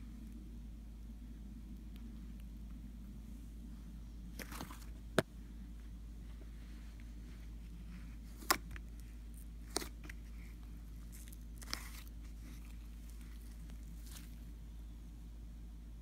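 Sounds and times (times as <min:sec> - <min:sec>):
low steady hum: 0:00.0 - 0:16.0
slime popping and crackling: 0:11.0 - 0:14.5.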